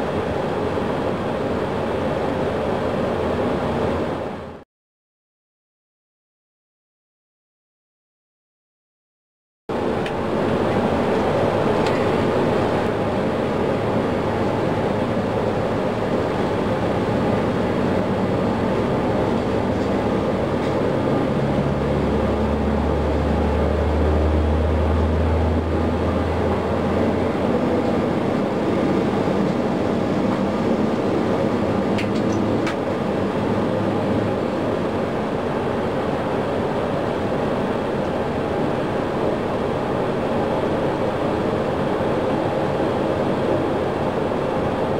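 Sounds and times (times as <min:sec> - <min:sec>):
jet engine running: 0:00.0 - 0:04.6, 0:09.7 - 0:44.9
low hum: 0:09.7 - 0:44.8
jet engine starting: 0:09.8 - 0:44.9.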